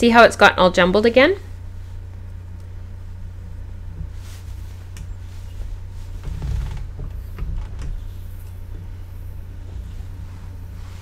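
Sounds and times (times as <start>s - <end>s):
soft clicks and rustles: 3.9s - 11.0s.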